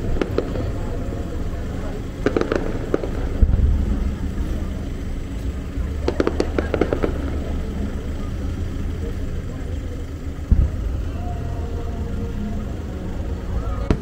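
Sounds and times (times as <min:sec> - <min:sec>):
low rumble: 0:00.0 - 0:14.0
fireworks crackling pops: 0:00.1 - 0:00.9, 0:02.1 - 0:07.7
firework bang: 0:02.2 - 0:05.0, 0:05.8 - 0:07.5, 0:10.5 - 0:11.0.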